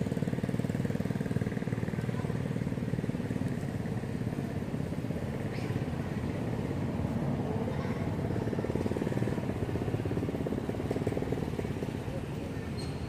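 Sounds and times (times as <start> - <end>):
small engine running: 0.0 - 13.0.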